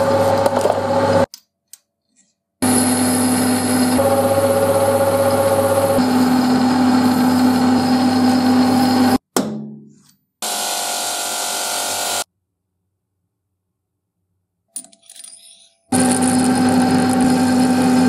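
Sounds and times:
bench buffing wheel running: 2.6 - 9.2, 16.0 - 18.0
filing spinning metal: 2.6 - 9.2, 15.4 - 18.0
metal lathe running: 2.6 - 9.2, 16.0 - 18.0.

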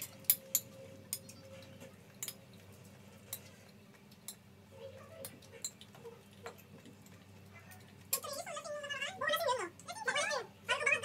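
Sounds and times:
spoons clinking on plates: 0.0 - 4.5.

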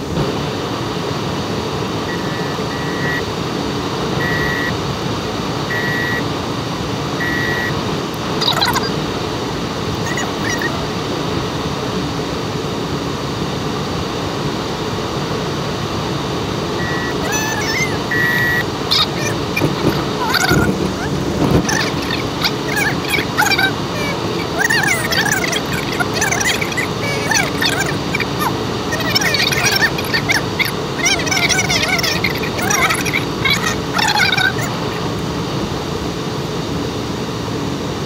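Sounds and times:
road and engine noise in car: 0.0 - 38.0
short high beeps: 2.1 - 3.2, 4.2 - 4.7, 5.7 - 6.2, 7.2 - 7.7, 16.8 - 20.7.

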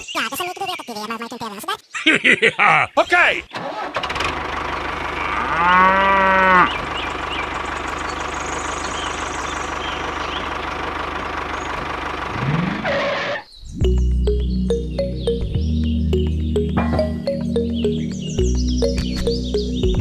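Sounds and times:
tractor engine running: 3.6 - 20.0
cow mooing: 5.1 - 6.9.

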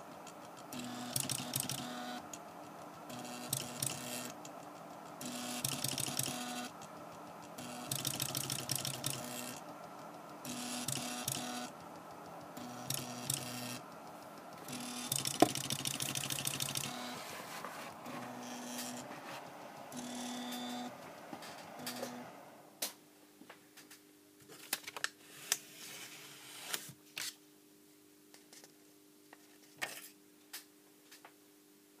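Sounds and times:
steady low hum: 0.0 - 22.8
stepper motors whining and buzzing: 18.1 - 19.1, 19.8 - 22.4.

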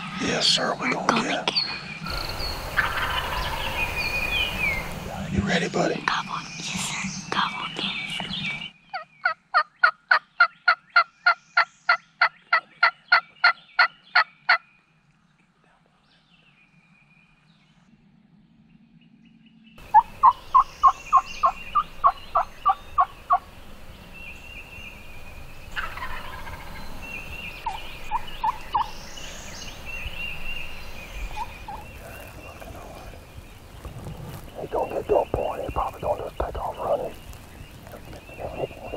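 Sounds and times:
turkey yelping: 2.8 - 3.6, 19.9 - 23.4, 25.8 - 26.7, 27.6 - 29.0.

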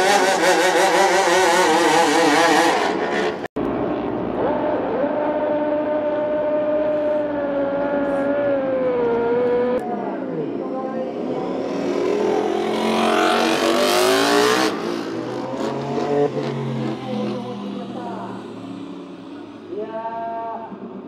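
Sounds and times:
racing car engine at high revs: 0.0 - 9.9, 11.0 - 19.8
racing engine revving up: 11.2 - 19.4.

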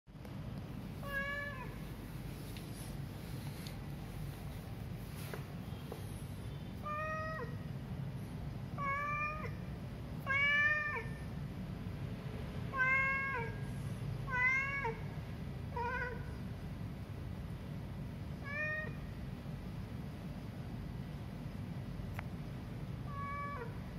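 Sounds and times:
steady low hum: 0.1 - 23.9
cat meowing: 1.0 - 1.8, 6.8 - 7.7, 8.8 - 11.3, 12.7 - 13.6, 14.2 - 15.1, 15.7 - 16.4, 18.4 - 19.1, 23.0 - 23.9.

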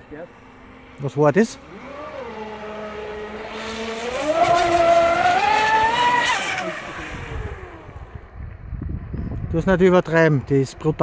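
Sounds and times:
speedboat motor whine: 0.0 - 8.6.

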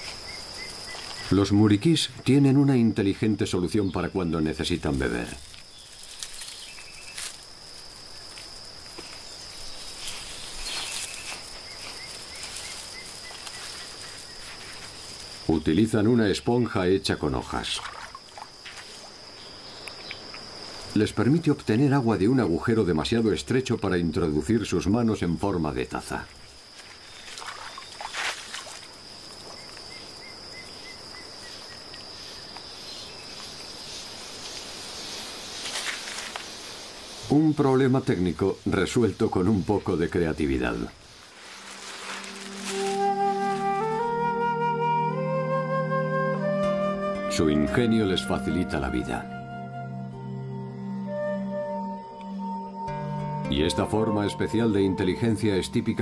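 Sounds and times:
high-pitched insect drone: 0.0 - 56.0
rustling: 5.0 - 15.5, 33.9 - 37.2, 40.9 - 44.1.

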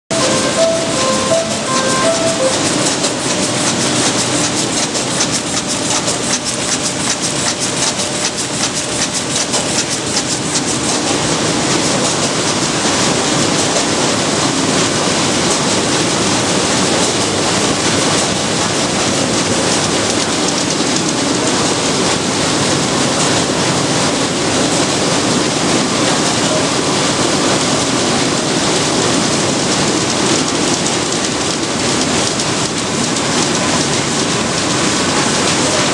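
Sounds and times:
printing press clattering: 2.3 - 26.6, 27.4 - 35.9.

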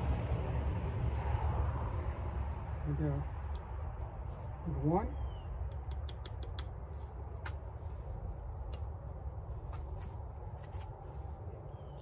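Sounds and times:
low rumble: 0.0 - 6.0.

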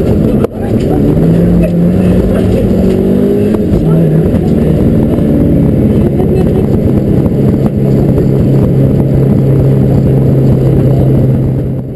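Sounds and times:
rally car engine running: 0.0 - 11.9
road rumble: 0.0 - 11.9.

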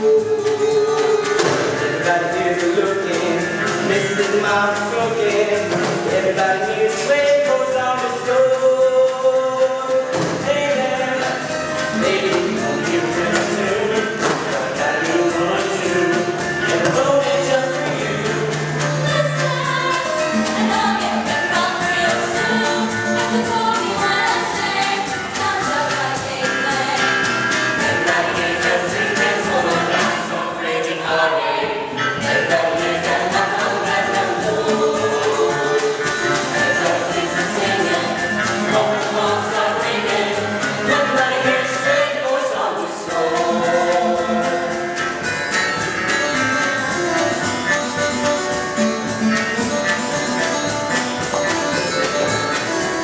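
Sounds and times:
backing music: 0.0 - 53.0
chorus singing a show tune: 10.1 - 45.2.

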